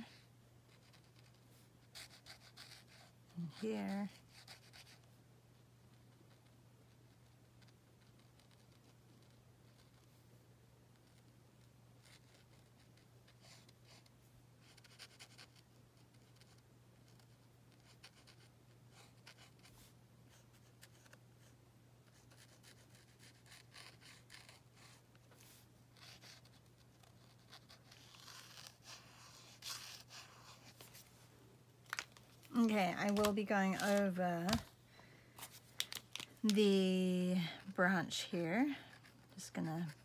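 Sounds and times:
low steady hum: 0.0s - 40.0s
marker scratching on card: 0.7s - 5.1s, 7.1s - 10.1s, 12.0s - 19.7s, 20.3s - 31.0s.

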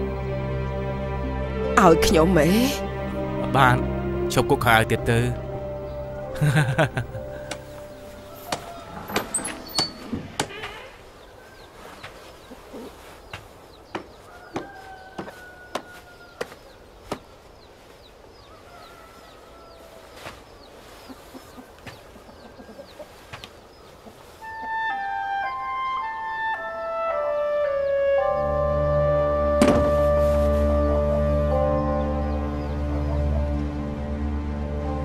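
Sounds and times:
small birds chirping: 3.9s - 28.7s
chickens clucking: 6.8s - 25.8s.

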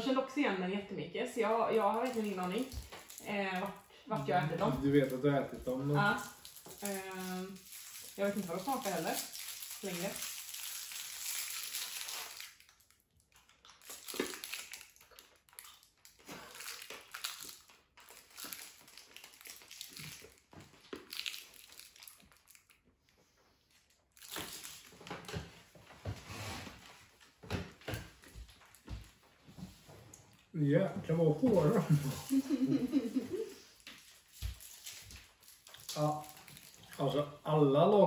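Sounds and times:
sweet wrapper crinkling: 1.7s - 25.4s, 31.4s - 37.4s
crunching and chewing sweet: 1.8s - 3.9s, 4.7s - 25.4s, 33.8s - 37.1s.

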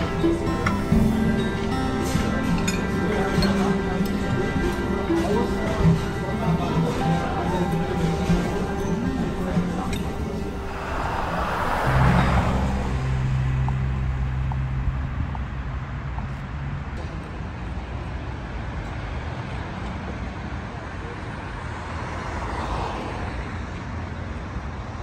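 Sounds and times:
car passing: 0.0s - 17.0s, 21.3s - 23.6s
traffic noise: 0.0s - 25.0s
low engine hum: 8.0s - 17.5s.

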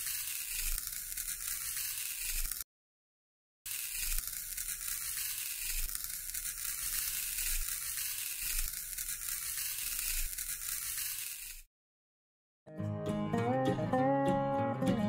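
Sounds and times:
stick scratching through sand: 0.0s - 2.6s, 3.7s - 11.7s.

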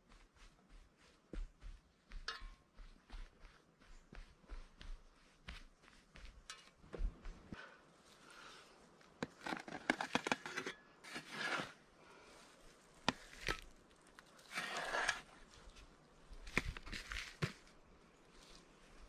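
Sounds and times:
hand spade scraping earth: 9.2s - 11.9s, 13.0s - 17.8s.

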